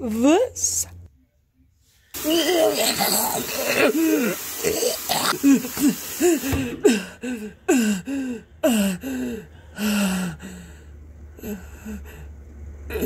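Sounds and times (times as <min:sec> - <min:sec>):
person making wordless vocal sounds: 0:02.2 - 0:05.8.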